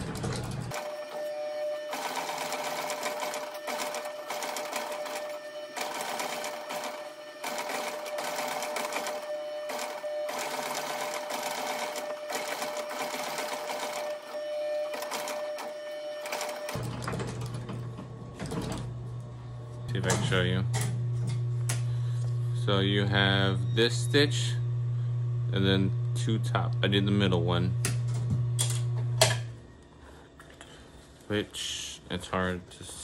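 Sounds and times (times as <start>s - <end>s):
sewing machine stitching leather: 0.0s - 17.1s
steady hum: 15.6s - 33.0s.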